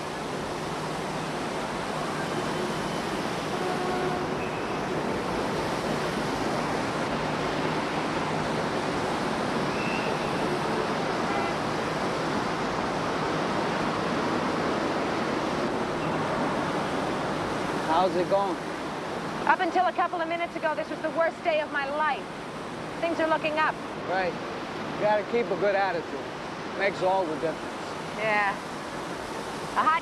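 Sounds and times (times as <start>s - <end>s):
fountain water splashing: 0.0s - 30.0s.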